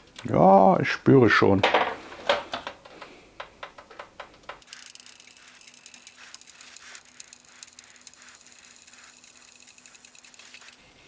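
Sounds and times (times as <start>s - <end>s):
grill humming and ticking: 3.7s - 10.9s.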